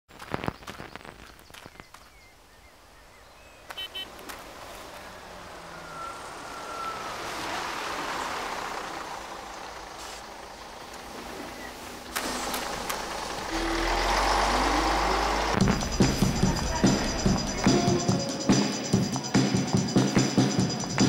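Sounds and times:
motor vehicle on dirt road: 3.2s - 18.2s.

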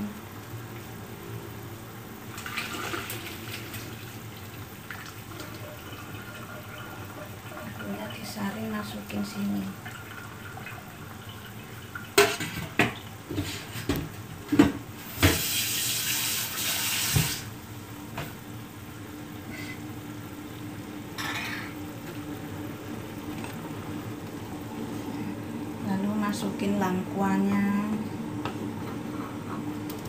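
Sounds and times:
water running into sink: 2.2s - 18.2s
metal pots and utensils clattering: 12.1s - 13.9s, 21.2s - 21.8s.

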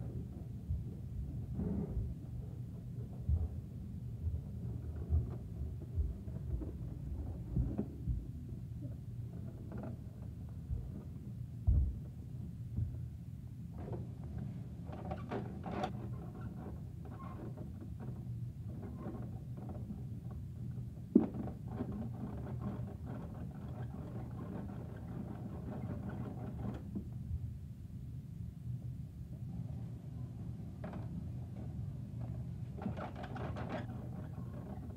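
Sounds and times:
low thump: 11.6s - 12.0s.

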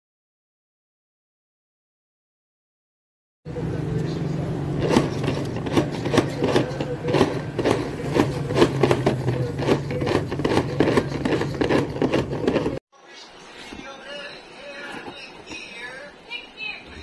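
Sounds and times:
food chopper rasping scrape: 4.6s - 12.8s.

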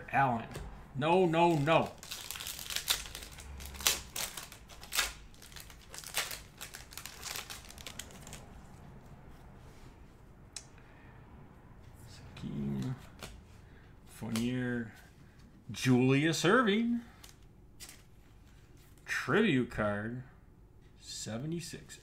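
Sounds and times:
plastic wrapper crinkling and tearing: 1.3s - 8.8s.

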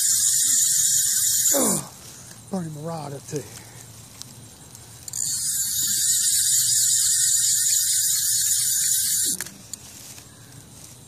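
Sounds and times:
fishing reel drag buzzing: 0.0s - 1.6s, 5.1s - 9.5s.

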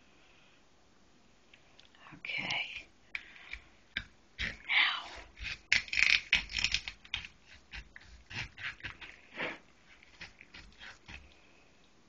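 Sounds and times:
knife cutting raw chicken: 3.5s - 11.4s.

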